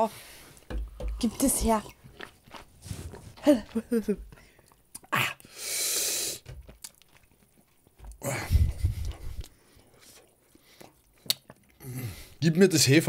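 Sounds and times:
hissing breaths through the mouth: 2.8 - 3.4, 5.4 - 6.5, 8.2 - 10.9.

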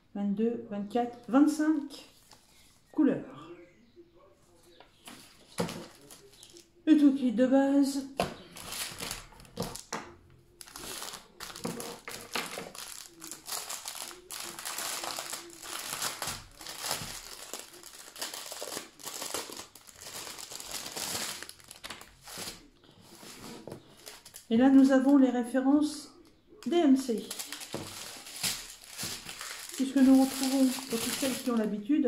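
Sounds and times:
plastic bag crinkling: 8.3 - 9.9, 10.6 - 24.5, 27.0 - 31.8.

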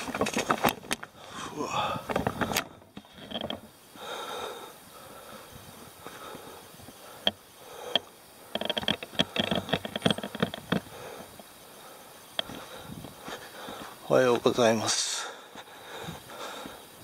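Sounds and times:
crackles and clicks: 0.0 - 3.8, 6.0 - 11.6.

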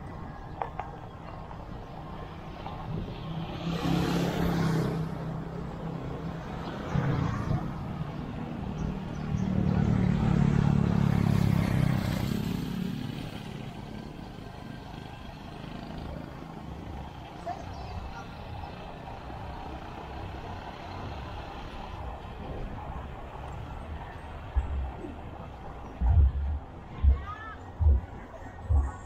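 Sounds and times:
vehicles passing: 0.0 - 29.0
steady low rumble: 21.8 - 29.0.

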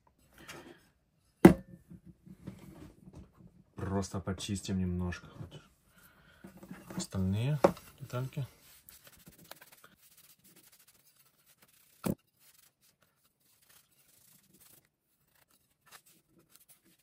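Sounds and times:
tissue rubbing on metal guard: 7.0 - 17.0.

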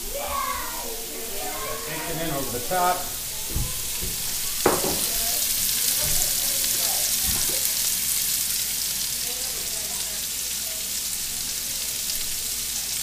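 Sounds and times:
food sizzling in skillet: 0.0 - 13.0
soft knocks: 3.4 - 5.2.

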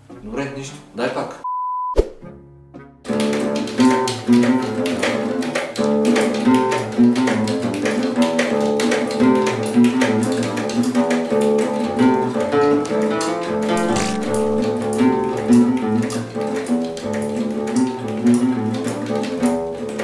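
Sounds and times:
band song with classical guitar: 2.2 - 20.0.

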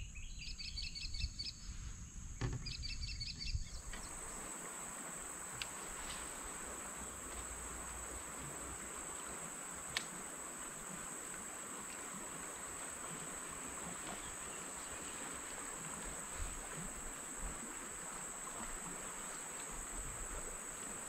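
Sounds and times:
bird chirping: 0.0 - 1.7, 2.4 - 4.2
even hiss: 1.4 - 21.0
faint ticks: 5.5 - 6.4, 7.2 - 10.6, 18.6 - 19.9.

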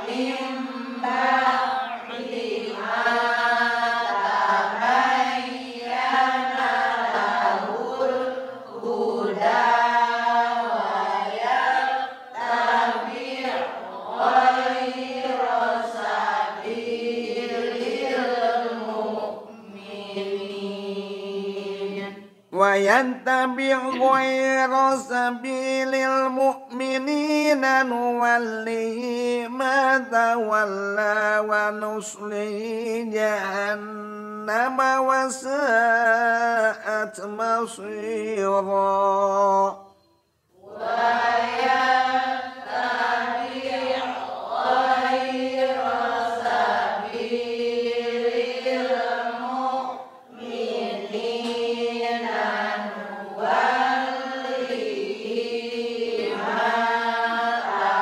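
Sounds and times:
man chanting recitation: 22.6 - 39.9.

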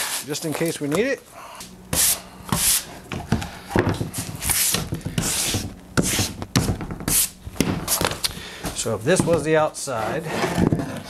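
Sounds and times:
brush sweeping plywood: 1.9 - 2.9, 4.2 - 6.4.

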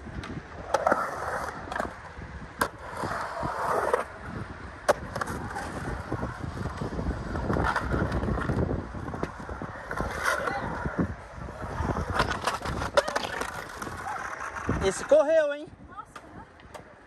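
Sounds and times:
skateboard wheels rolling on concrete: 0.0 - 17.0
skateboard clacking on concrete: 4.8 - 15.3, 16.0 - 17.0.

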